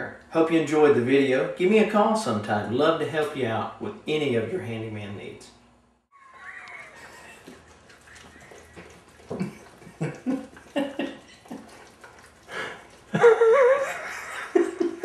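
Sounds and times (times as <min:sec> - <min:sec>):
dog howling: 0:06.2 - 0:09.3
dog quiet vocal sounds: 0:06.7 - 0:13.1.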